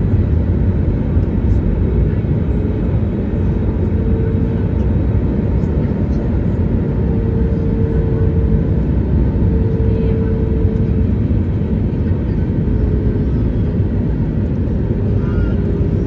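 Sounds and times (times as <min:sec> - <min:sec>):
airliner cabin low rumble: 0:00.0 - 0:16.0.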